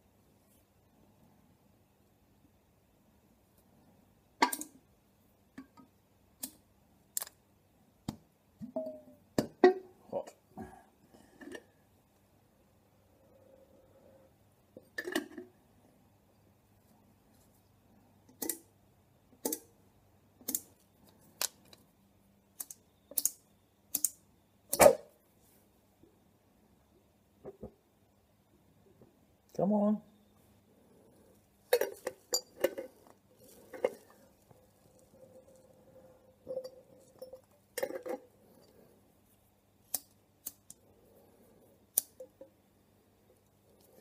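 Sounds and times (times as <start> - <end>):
sharp clicks: 22.6 - 24.8.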